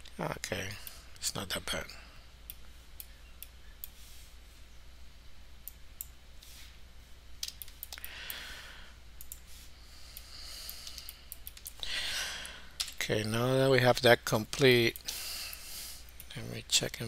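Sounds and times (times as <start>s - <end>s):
computer mouse clicking: 7.4s - 8.1s, 9.2s - 9.4s, 10.2s - 11.8s
soft breath: 8.0s - 12.8s.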